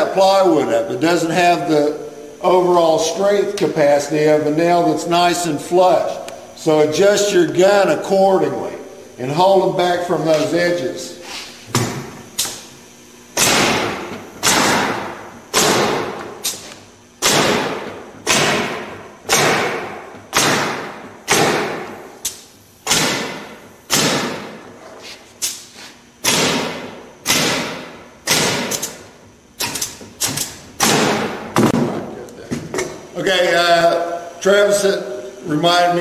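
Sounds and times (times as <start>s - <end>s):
nail gun shots: 13.4s - 16.6s, 17.2s - 24.6s, 26.2s - 29.0s, 29.6s - 31.8s.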